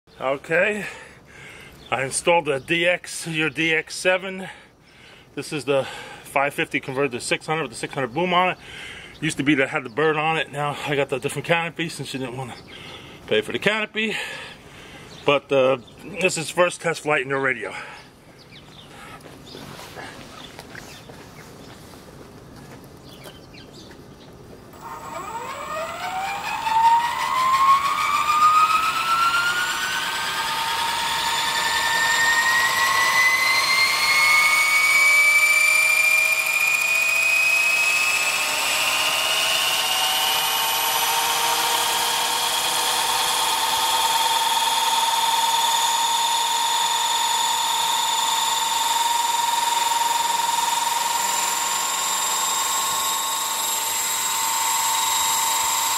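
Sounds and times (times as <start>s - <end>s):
rc helicopter motor and rotor whine: 24.7s - 55.9s.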